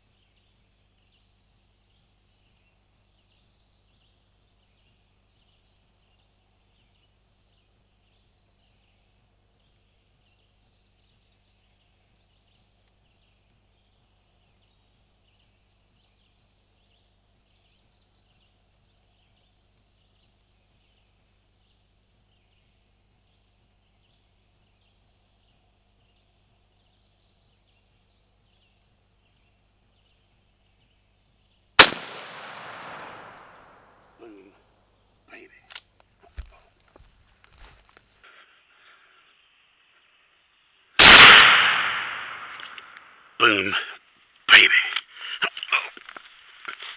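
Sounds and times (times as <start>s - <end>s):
insects chirping: 0.1s - 46.9s
shotgun shot echoing: 31.8s - 34.1s, 41.0s - 43.0s
birds calling: 31.8s - 37.7s.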